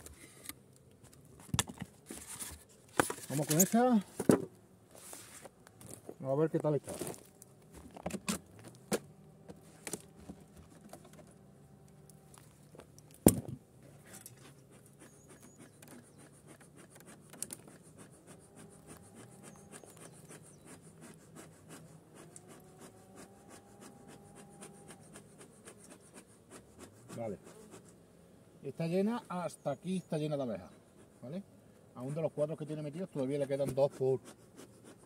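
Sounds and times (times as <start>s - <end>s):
scratching and handling noises: 0.0s - 28.0s
bees buzzing: 7.0s - 33.3s.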